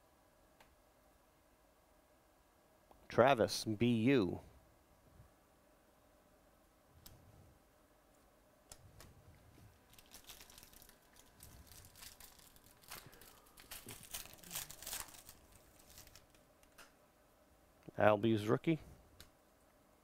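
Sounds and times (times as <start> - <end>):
foil wrapper tearing and crinkling: 9.9 - 16.4.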